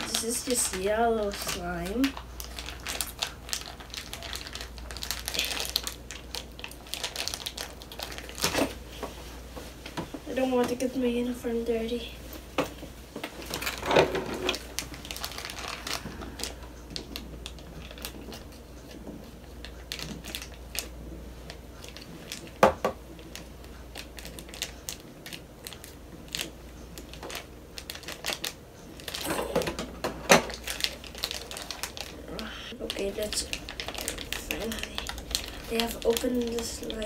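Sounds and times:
plastic pouch crinkling and clicking: 0.0 - 8.8, 14.5 - 20.9, 21.5 - 22.6, 23.2 - 29.3, 30.3 - 37.0.

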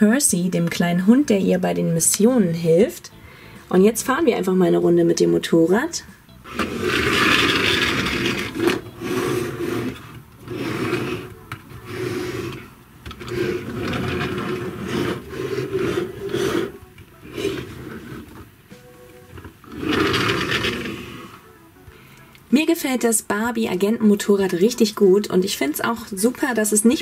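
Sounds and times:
plastic toy wheels rolling on table: 6.5 - 18.5, 19.3 - 21.4.

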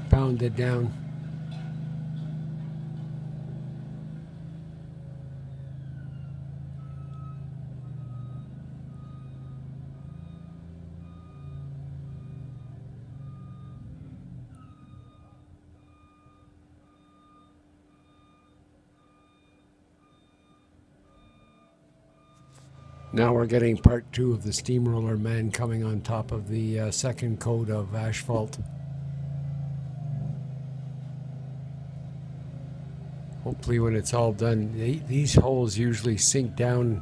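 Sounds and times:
reverse alarm beeping: 5.9 - 26.2, 33.5 - 37.0.

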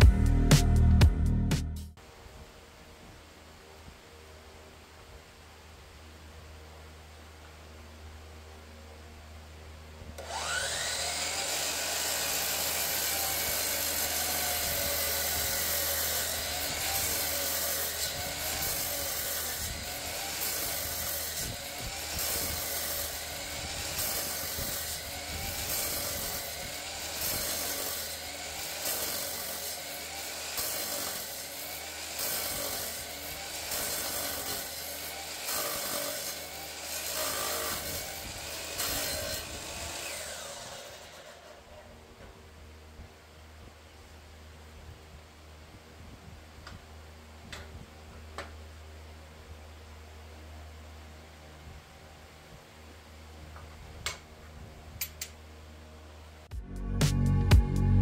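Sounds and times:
miter saw cutting metal: 10.2 - 42.3.

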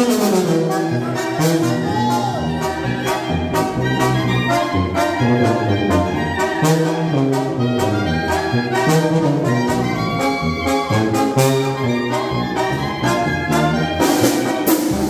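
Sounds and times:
brass band music: 0.0 - 15.0
percussion beat: 13.4 - 15.0.

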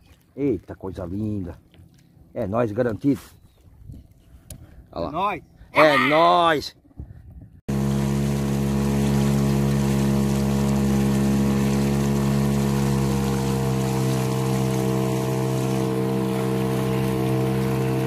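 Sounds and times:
outboard motor humming: 0.0 - 6.4, 7.1 - 18.0
water rushing: 7.7 - 18.0.

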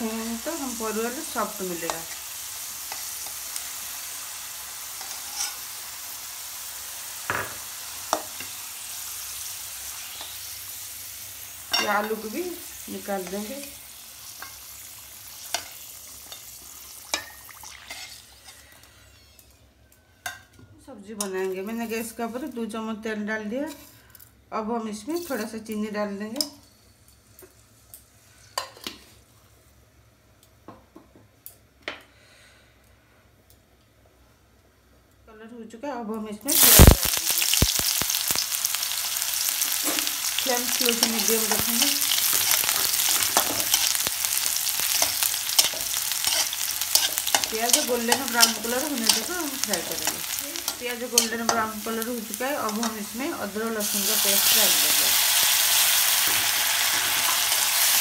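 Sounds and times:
oil sizzling: 0.0 - 19.6, 36.5 - 58.0.

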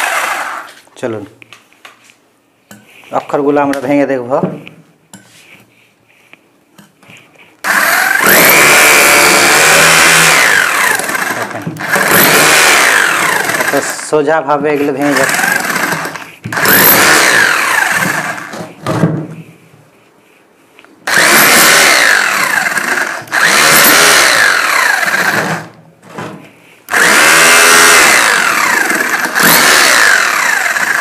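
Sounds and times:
hammer drill chiselling brick: 0.0 - 0.8, 7.6 - 14.1, 15.0 - 18.6, 21.1 - 25.8, 26.9 - 31.0.

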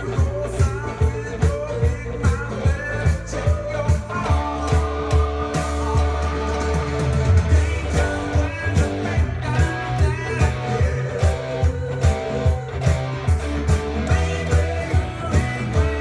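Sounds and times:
bass: 0.0 - 16.0
drum beat: 0.0 - 16.0
electric guitar with bent notes: 0.0 - 16.0.

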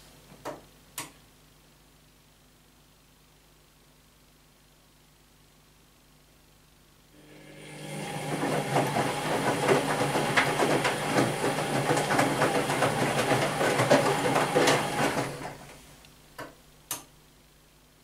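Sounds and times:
washing machine drum tumbling: 7.4 - 15.8
water and clothes sloshing: 7.5 - 15.8.

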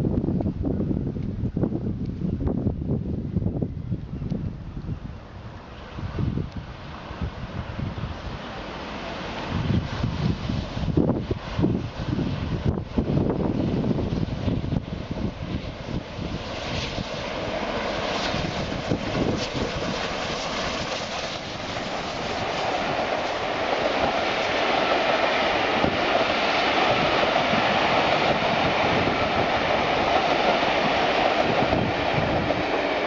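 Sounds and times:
steam locomotive passing: 5.2 - 33.0
wheel-on-rail noise: 5.6 - 33.0.

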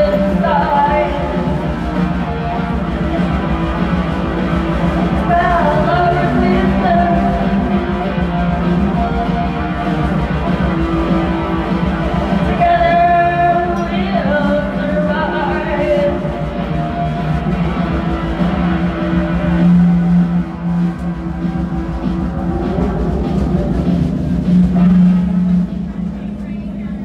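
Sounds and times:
person singing: 0.0 - 20.0
electric guitars: 0.0 - 26.6.

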